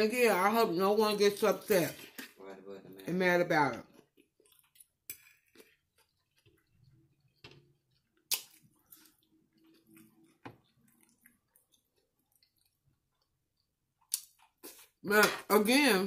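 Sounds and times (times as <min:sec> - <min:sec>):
quiet chewing: 0:03.8 - 0:15.0.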